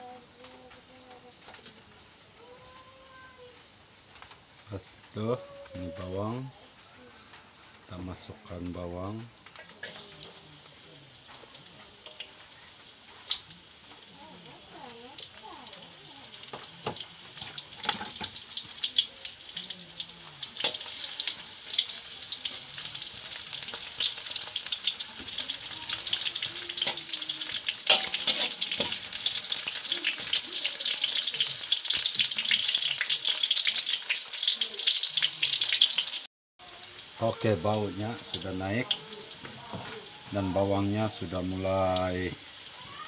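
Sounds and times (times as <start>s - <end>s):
garlic sizzling in hot oil: 9.5s - 43.0s
metal spatula stirring in wok: 16.4s - 36.2s.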